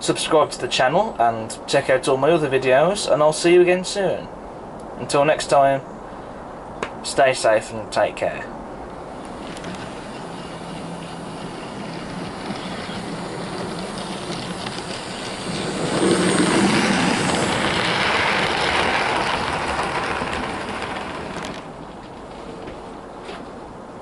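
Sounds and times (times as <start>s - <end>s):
model train motor whir: 9.1s - 21.9s
model train wheel clatter: 9.2s - 22.8s.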